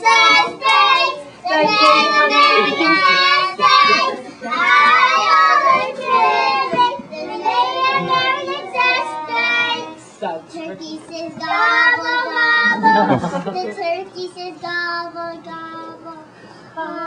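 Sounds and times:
children singing: 0:00.0 - 0:10.0.

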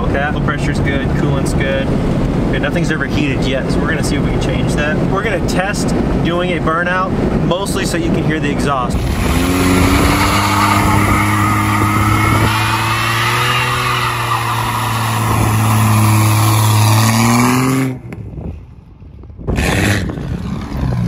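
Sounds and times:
loud engine exhaust at high revs: 0:09.0 - 0:18.0.

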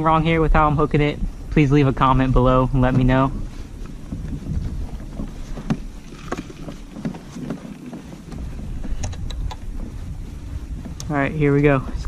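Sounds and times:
low wind rumble on microphone: 0:00.0 - 0:12.0
light clicks and taps: 0:03.8 - 0:10.0.

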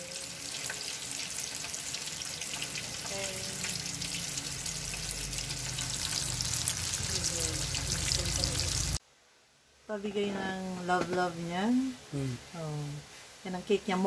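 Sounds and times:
food sizzling in a pan: 0:00.0 - 0:09.0.

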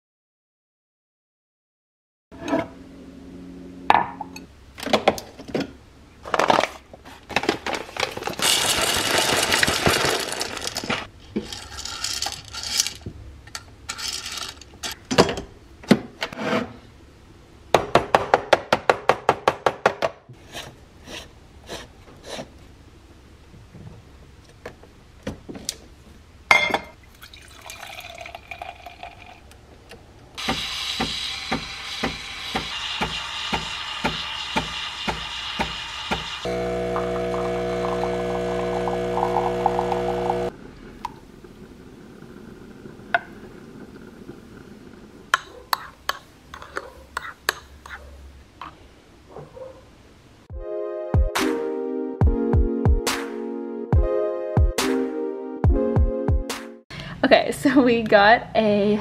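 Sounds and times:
coffee grinder grinding: 0:08.2 - 0:13.0, 0:30.5 - 0:40.5
steam wand hissing: 0:30.4 - 0:38.1.

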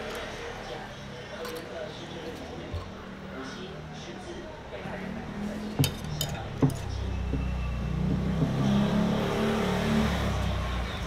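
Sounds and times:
chopsticks clinking on porcelain bowls: 0:00.0 - 0:03.1, 0:05.7 - 0:08.5
vehicle engine rumbling: 0:04.6 - 0:11.0.

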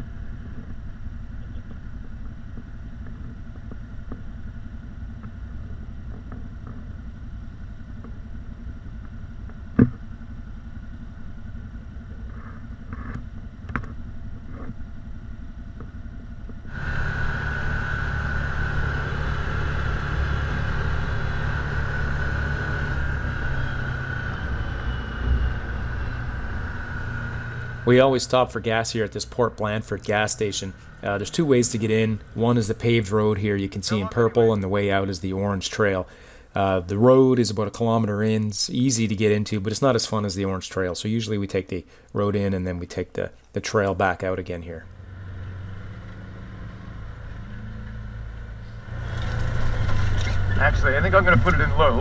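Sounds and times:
atv engines rumbling: 0:00.0 - 0:37.2, 0:44.1 - 0:52.0
engine with high whine: 0:00.0 - 0:42.1, 0:43.7 - 0:52.0.

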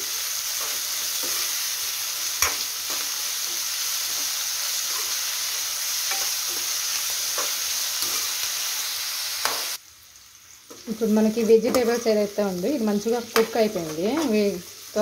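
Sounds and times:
vegetables sizzling in hot oil: 0:00.0 - 0:15.0
metal spatula scraping a pan: 0:00.2 - 0:05.4, 0:06.0 - 0:08.5.

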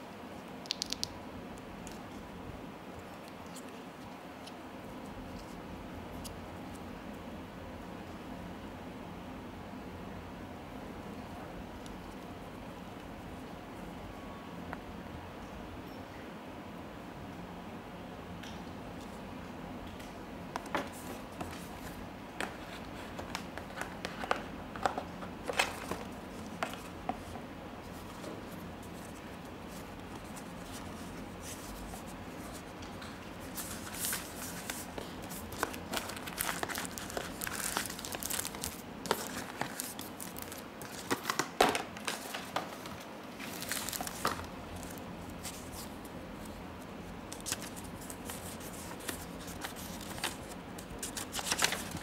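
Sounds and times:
cardboard and paper rustling: 0:20.7 - 0:52.0.

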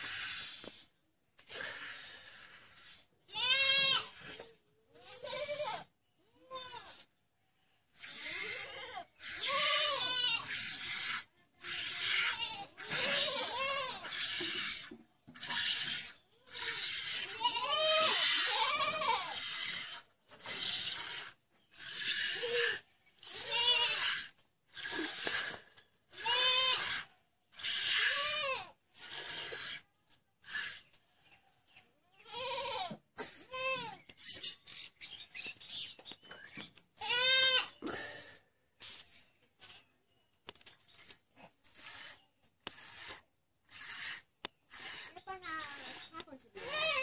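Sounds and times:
goat bleating: 0:03.3 - 0:07.0, 0:08.1 - 0:21.2, 0:22.2 - 0:25.1, 0:26.1 - 0:29.5, 0:32.2 - 0:34.1, 0:37.0 - 0:38.0, 0:44.8 - 0:47.0.

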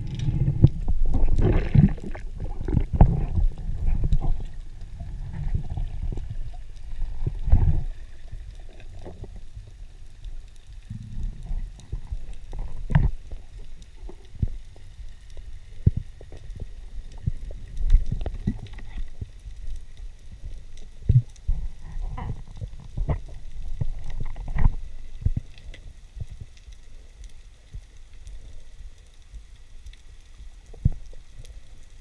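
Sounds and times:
underwater water rumble: 0:00.0 - 0:32.0.

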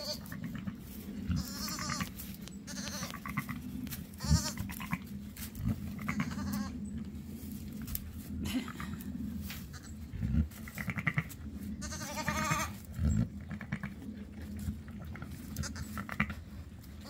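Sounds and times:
lamb bleating: 0:00.0 - 0:00.6, 0:01.3 - 0:02.1, 0:02.7 - 0:03.6, 0:04.2 - 0:05.0, 0:06.0 - 0:06.7, 0:10.7 - 0:12.9, 0:15.6 - 0:16.4
straw rustling: 0:00.3 - 0:12.0.

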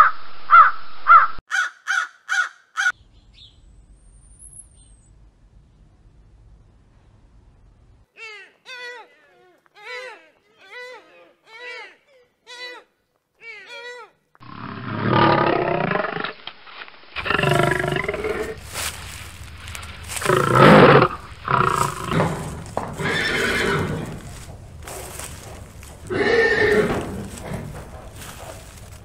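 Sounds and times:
loud animal calls: 0:14.4 - 0:16.4, 0:17.2 - 0:29.0
horse neighing: 0:17.2 - 0:18.7, 0:19.8 - 0:24.8, 0:25.4 - 0:28.5.

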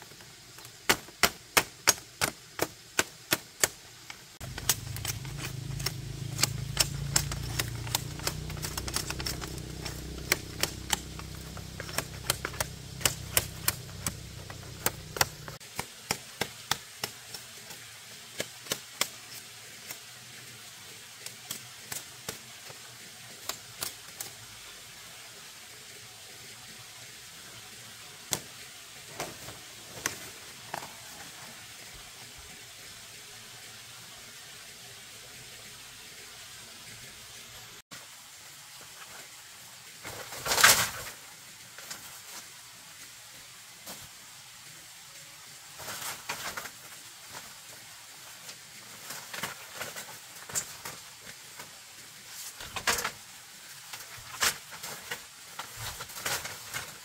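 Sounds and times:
low hum: 0:04.4 - 0:15.6.

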